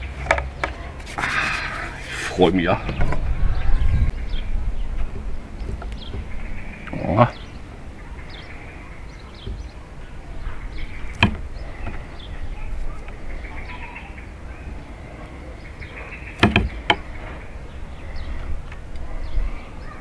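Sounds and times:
faint bird chirps: 0:00.8 - 0:20.0
low rumble: 0:01.4 - 0:16.0.

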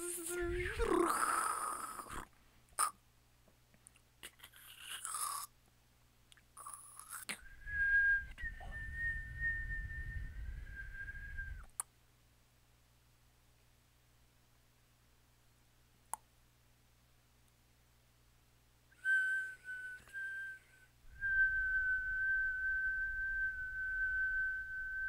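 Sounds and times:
tongue clicks: 0:02.8 - 0:03.0, 0:03.8 - 0:05.5, 0:06.3 - 0:07.5, 0:11.6 - 0:11.9
low rumble: 0:07.4 - 0:11.6
whistled tone: 0:07.4 - 0:11.7, 0:18.9 - 0:25.0.

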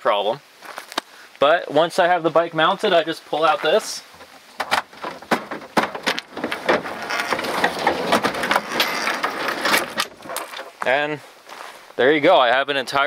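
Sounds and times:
plastic tool cases clattering: 0:03.4 - 0:10.9
drawer knocks and clicks: 0:04.6 - 0:10.6
drawer rattling rumble on slide: 0:04.6 - 0:10.7.

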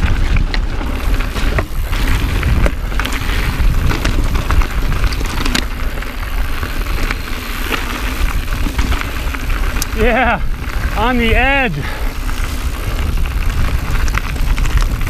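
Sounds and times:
mountain bike rattling over rocks: 0:00.0 - 0:15.0
wind rumbling on microphone: 0:00.0 - 0:15.0.

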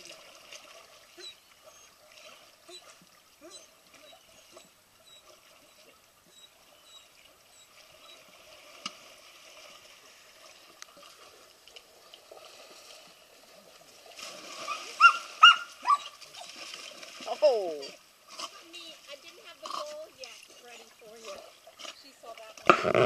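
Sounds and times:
pool water lapping: 0:00.0 - 0:23.0
big splash in pool: 0:14.0 - 0:18.5
dog barking: 0:15.0 - 0:16.2.

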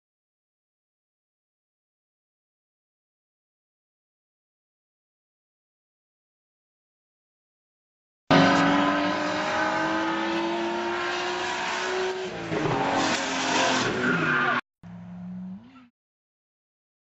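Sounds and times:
tyres skidding: 0:08.3 - 0:15.3
engine revving high: 0:08.3 - 0:15.9.

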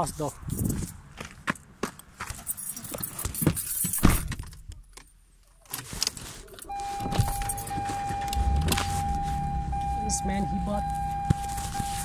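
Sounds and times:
keys jangling and knocking: 0:02.4 - 0:04.6.

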